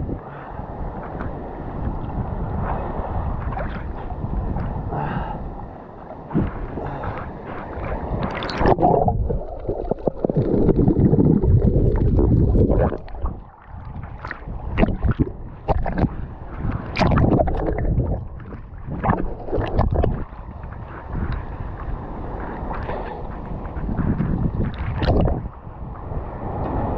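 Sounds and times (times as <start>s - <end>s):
water sloshing and splashing: 5.6s - 26.9s.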